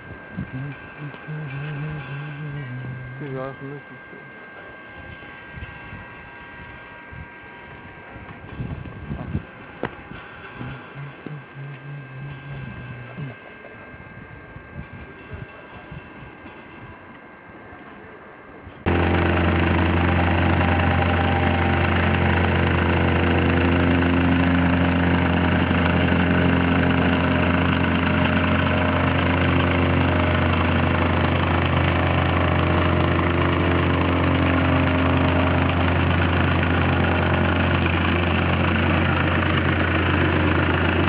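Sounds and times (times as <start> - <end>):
vibrating plate pulsing: 0.0 - 17.1, 18.9 - 41.0
plate compactor engine running: 18.8 - 41.0.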